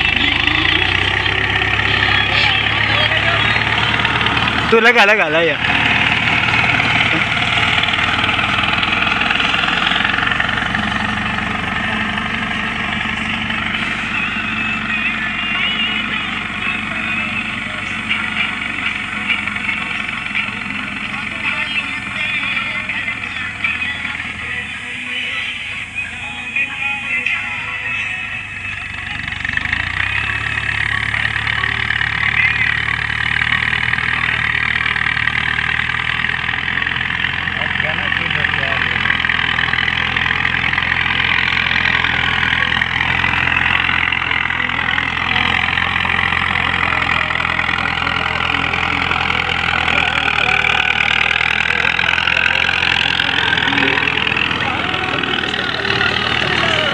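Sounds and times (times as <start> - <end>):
tractor diesel engine running: 0.0 - 56.9.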